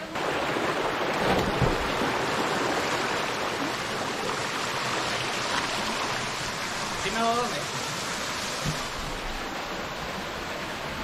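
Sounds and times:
waterfall pouring into pool: 0:00.1 - 0:09.8
splash of person diving: 0:01.0 - 0:02.3.

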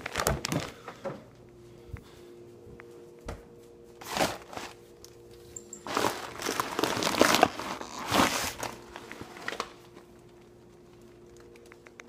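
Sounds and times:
paper towel crumpling: 0:00.0 - 0:00.8, 0:04.0 - 0:04.9, 0:05.8 - 0:10.6.

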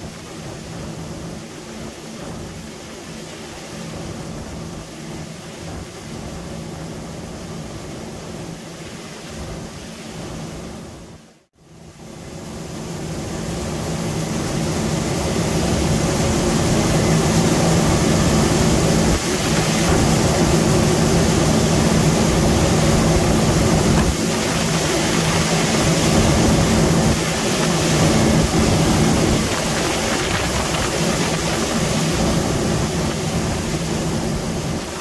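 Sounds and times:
combine harvester running: 0:12.6 - 0:35.0.

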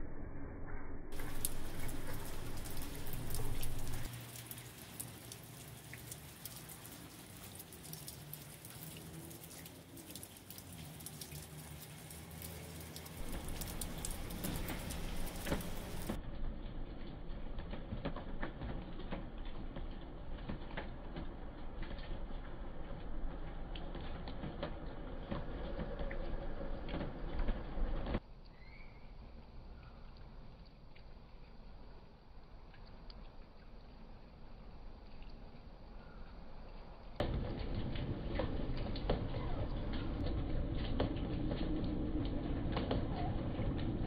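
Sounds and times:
low rumble: 0:00.0 - 0:04.2, 0:13.2 - 0:18.2
snow pattering on surfaces: 0:01.1 - 0:28.1.

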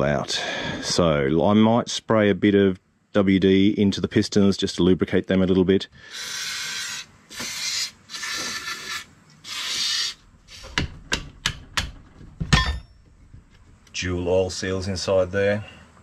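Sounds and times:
aerosol spray hissing: 0:06.1 - 0:10.7.

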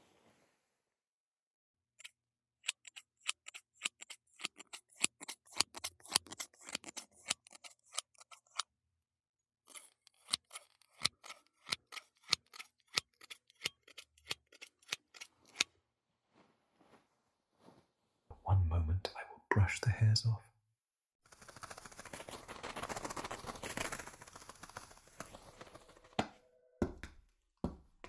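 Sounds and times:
scissors snipping hair: 0:02.0 - 0:08.6, 0:09.7 - 0:15.7.

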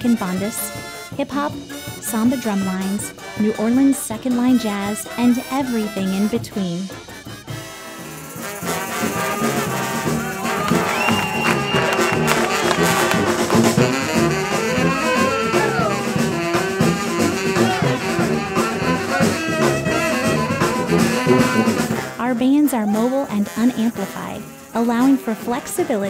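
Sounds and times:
street brass band playing: 0:00.0 - 0:26.0
horn sliding down in pitch: 0:08.4 - 0:22.1.

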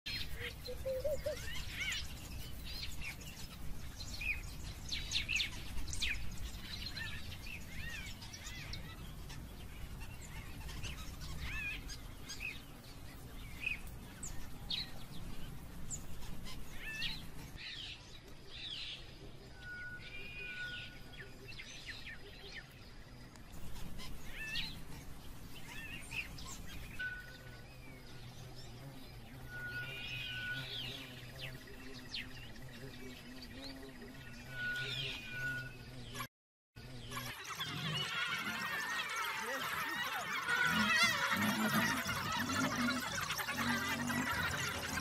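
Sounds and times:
birds chirping: 0:00.1 - 0:45.0.

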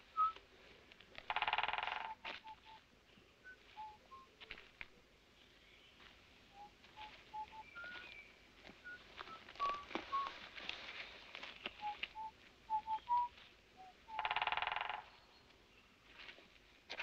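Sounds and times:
woodpecker drumming: 0:01.2 - 0:02.8, 0:11.7 - 0:15.3
birds whistling: 0:02.1 - 0:02.8, 0:03.4 - 0:04.3, 0:06.6 - 0:10.4, 0:11.6 - 0:14.4.

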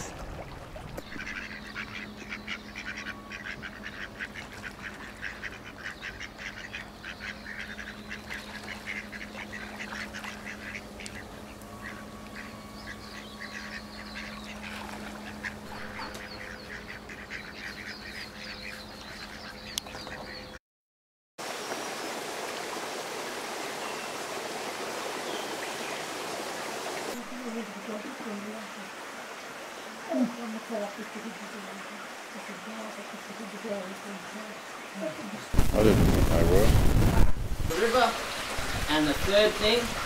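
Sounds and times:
ducks quacking: 0:01.0 - 0:20.6, 0:37.8 - 0:40.0.

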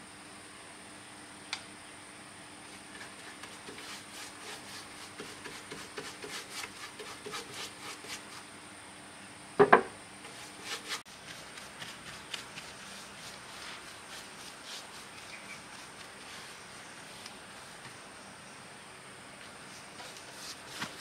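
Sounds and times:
loud knock on wood: 0:09.6 - 0:09.9.

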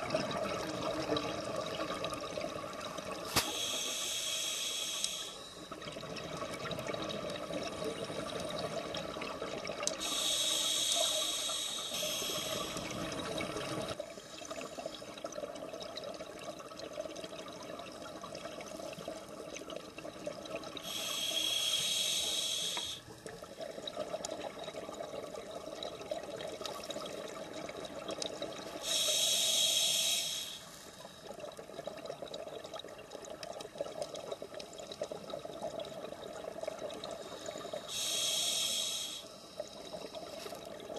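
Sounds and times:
exhaled air bubbling: 0:00.0 - 0:40.9
underwater wash: 0:00.0 - 0:40.9
regulator breathing hiss: 0:03.3 - 0:05.7, 0:10.0 - 0:13.0, 0:20.8 - 0:23.1, 0:28.8 - 0:31.0, 0:37.2 - 0:40.5.

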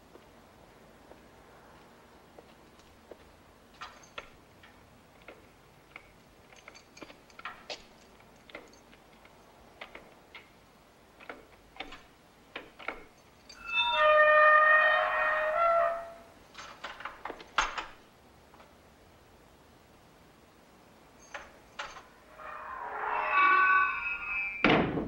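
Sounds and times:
keys clinking in gate lock: 0:03.8 - 0:10.6, 0:11.2 - 0:14.1, 0:16.5 - 0:18.0, 0:21.2 - 0:22.2.

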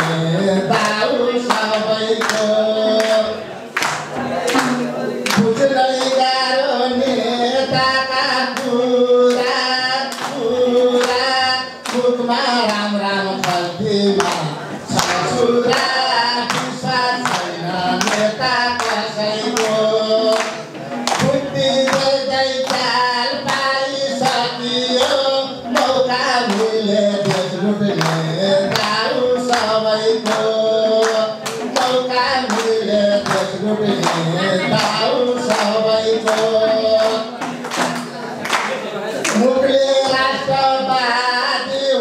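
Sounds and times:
hands clapping in time: 0:00.0 - 0:06.4, 0:08.4 - 0:39.6
folk-style tune: 0:00.0 - 0:42.0
man singing into a microphone: 0:00.0 - 0:42.0.

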